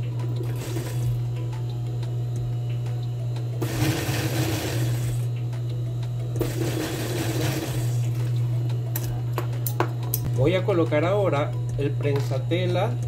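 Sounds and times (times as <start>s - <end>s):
sewing machine motor hum: 0.0s - 9.3s.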